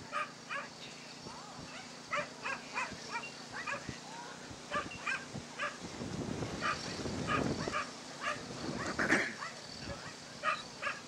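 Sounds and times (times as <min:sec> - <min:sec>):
dog yipping and whining: 0:04.7 - 0:05.8.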